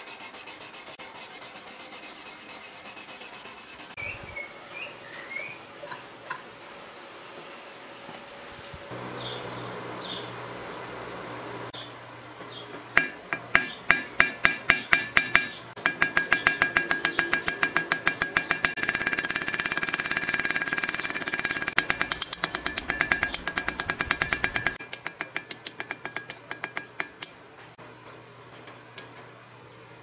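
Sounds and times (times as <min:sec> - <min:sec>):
hammer striking steel blade: 0:13.0 - 0:27.4.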